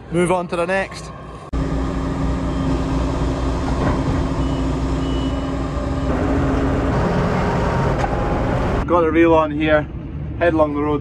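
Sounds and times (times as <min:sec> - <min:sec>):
combine harvester engine running: 0:01.6 - 0:08.8.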